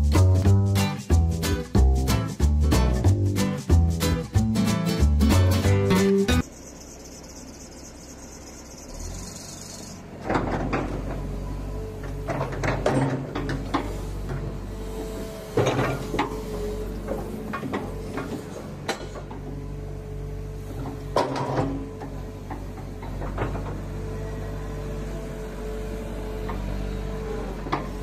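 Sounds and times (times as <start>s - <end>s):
excavator diesel engine droning: 5.9s - 28.0s
hydraulic clunks and knocks: 10.1s - 14.6s, 15.5s - 19.7s, 20.6s - 24.0s.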